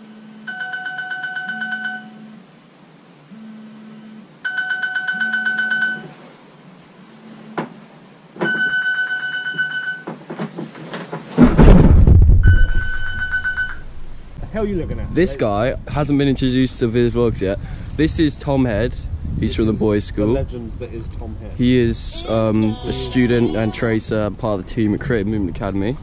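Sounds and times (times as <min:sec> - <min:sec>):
electronic alarm beeping: 0:03.6 - 0:06.1, 0:08.4 - 0:10.1, 0:12.4 - 0:14.3
rustling and bumping: 0:10.1 - 0:14.4
low pulsing tone: 0:11.8 - 0:15.2.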